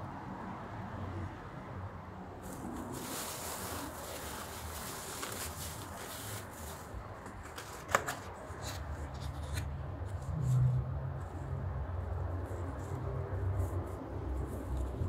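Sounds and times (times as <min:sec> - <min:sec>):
plastic bag crinkling: 0:02.4 - 0:07.0.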